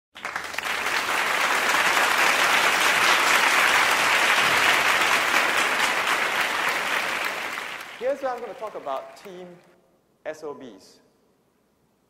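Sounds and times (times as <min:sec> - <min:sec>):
large audience applauding: 0:00.1 - 0:09.7.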